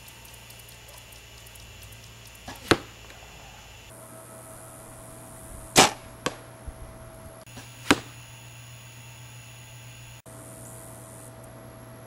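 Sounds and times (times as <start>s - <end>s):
arrow hitting foam target: 2.4s - 2.9s, 5.8s - 6.5s, 7.5s - 8.2s.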